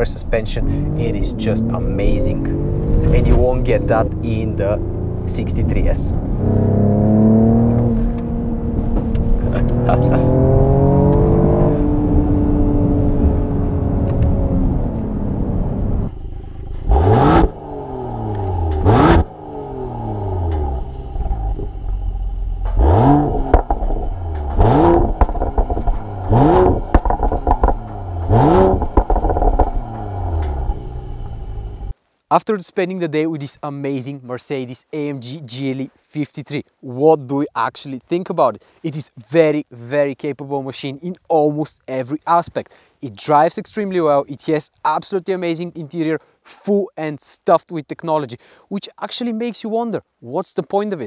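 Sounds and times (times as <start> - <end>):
car engine accelerating through gears: 0.4 - 31.9
car engine revving hard: 0.6 - 16.1, 16.7 - 21.6, 22.6 - 31.8.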